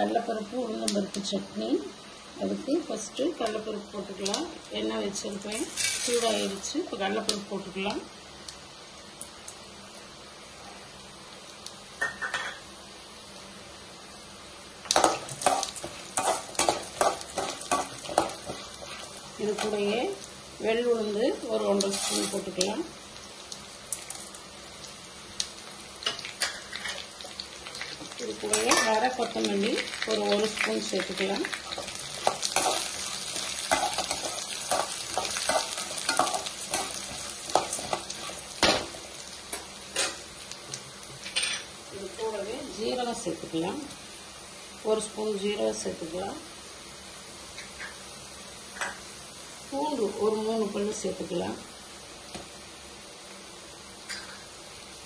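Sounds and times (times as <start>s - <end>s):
faint sizzling in oil: 0.0s - 55.0s
spatula scraping and knocking pan: 14.9s - 19.8s, 31.7s - 38.9s.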